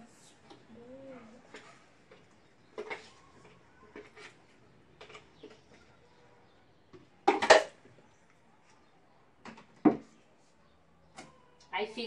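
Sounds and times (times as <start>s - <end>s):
plastic jar clattering on metal pan: 7.2s - 7.8s.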